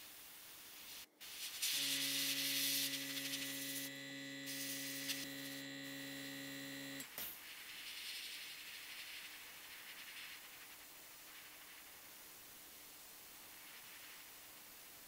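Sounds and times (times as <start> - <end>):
airbrush spraying hiss: 0.5 - 3.9, 4.5 - 5.6
compressor motor humming: 1.7 - 7.1.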